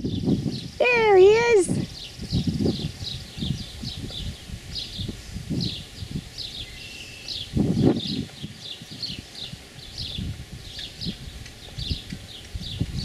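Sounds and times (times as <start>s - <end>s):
low rumbling microphone noise: 0.0s - 13.0s
small birds chirping: 0.0s - 13.0s.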